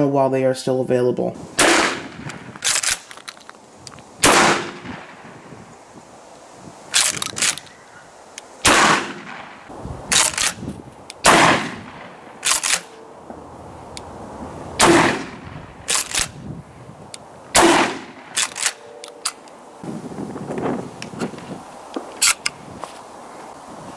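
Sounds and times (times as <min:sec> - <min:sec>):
shotgun shots: 0:01.6 - 0:03.1, 0:04.2 - 0:05.2, 0:08.6 - 0:10.6, 0:11.2 - 0:13.0, 0:14.8 - 0:16.3, 0:17.6 - 0:18.8
shotgun pump clacking: 0:02.2 - 0:04.0, 0:06.9 - 0:07.7, 0:10.1 - 0:11.2, 0:12.4 - 0:12.9, 0:15.9 - 0:16.3, 0:18.4 - 0:19.4, 0:22.2 - 0:22.5.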